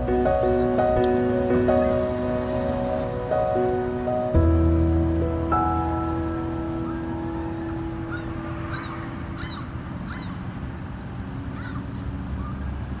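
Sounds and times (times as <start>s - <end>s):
background music: 0.0s - 9.3s
steady low rumble: 0.0s - 12.3s
gull calling: 1.7s - 2.2s, 6.8s - 10.5s, 11.5s - 12.6s.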